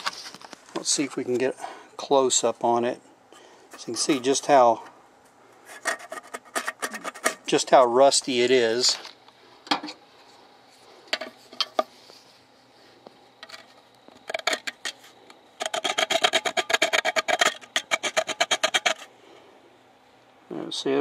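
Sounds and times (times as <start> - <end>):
scraping rust off saw blade: 5.6 - 7.4, 15.6 - 19.1.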